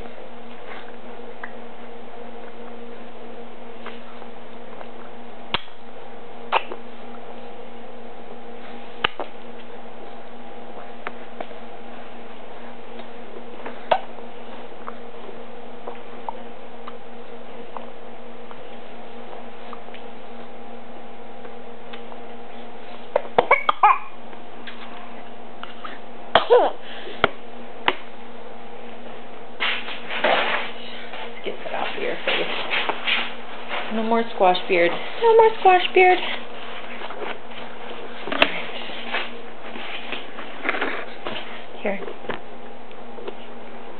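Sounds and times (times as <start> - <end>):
electrical hum with hiss: 0.0 - 43.9
baby making cough-like sounds: 23.4 - 24.2, 26.4 - 26.8.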